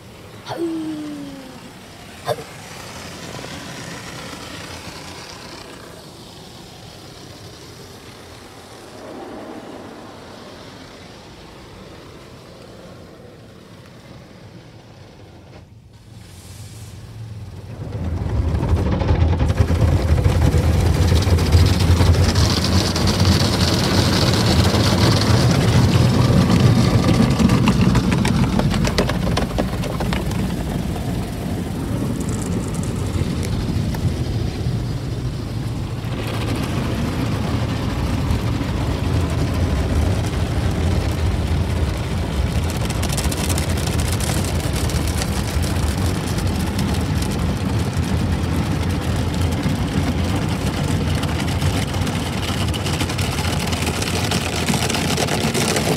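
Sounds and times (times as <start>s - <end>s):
car wash machinery rumble: 0.0s - 55.9s
water spraying on car glass: 19.2s - 55.9s.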